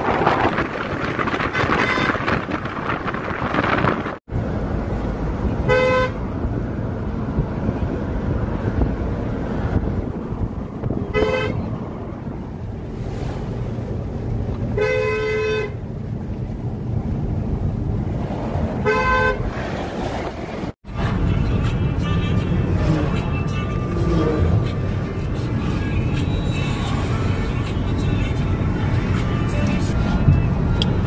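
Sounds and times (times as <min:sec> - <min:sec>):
road traffic noise: 0:00.0 - 0:31.0
vehicle horn honking: 0:01.5 - 0:02.4, 0:05.7 - 0:06.2, 0:11.1 - 0:11.7, 0:14.8 - 0:15.8, 0:18.8 - 0:19.4, 0:21.8 - 0:24.5.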